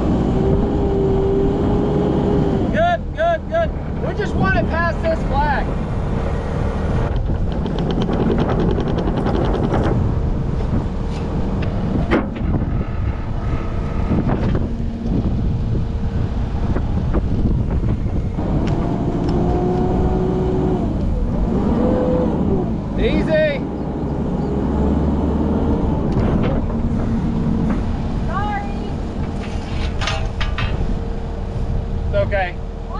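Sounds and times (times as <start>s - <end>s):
skid steer engine running: 0.0s - 32.9s
steady whine: 0.0s - 32.9s
sharp knocks: 7.1s - 10.1s
rapid rattle: 7.1s - 10.2s.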